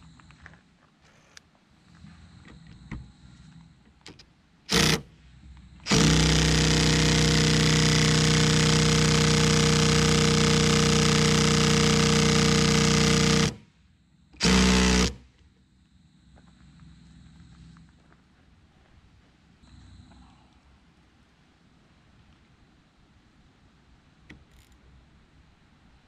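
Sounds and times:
impact tool hammering on nut: 0:05.9 - 0:08.4.

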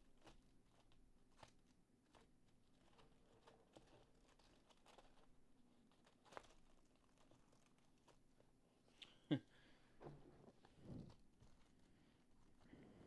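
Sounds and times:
paper envelopes rustling: 0:00.1 - 0:08.4.

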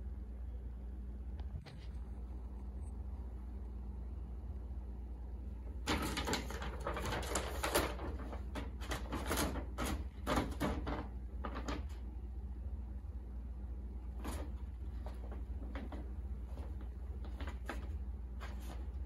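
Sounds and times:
paper bag crinkling: 0:05.8 - 0:12.1.

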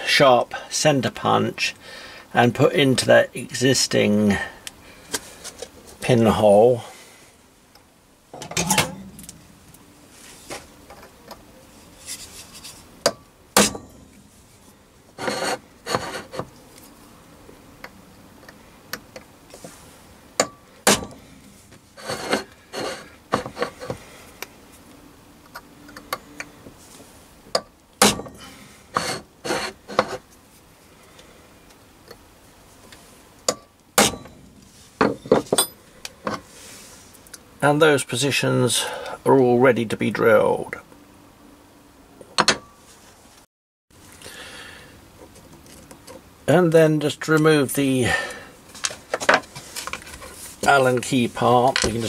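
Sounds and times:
metal parts scraping: 0:08.4 - 0:09.5, 0:22.0 - 0:24.0.

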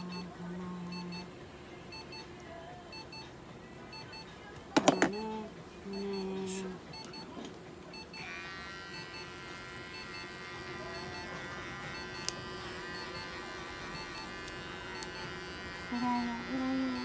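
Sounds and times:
electric pet clipper running: 0:08.2 - 0:17.0.

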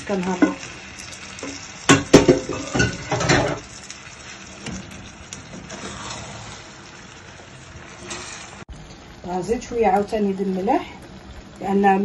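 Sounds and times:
pan sizzling with small pops: 0:00.0 - 0:12.0
spatula scraping metal pan: 0:05.6 - 0:06.8, 0:08.0 - 0:08.6.

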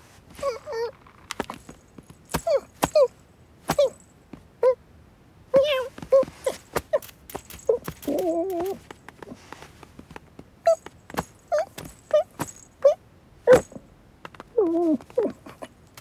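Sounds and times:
squeaky kitten mews: 0:05.5 - 0:07.1
cartoon kitten cry: 0:05.6 - 0:06.6, 0:08.1 - 0:08.8
soft clicks and taps: 0:06.0 - 0:12.6.

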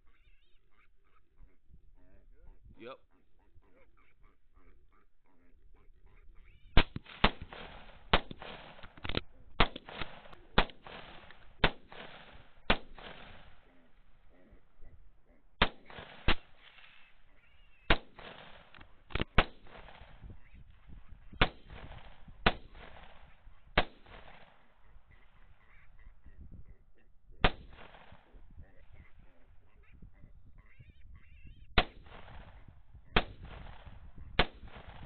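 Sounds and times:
rifle shots with echo: 0:06.8 - 0:14.8, 0:15.6 - 0:26.3, 0:27.4 - 0:29.6, 0:31.8 - 0:35.0.

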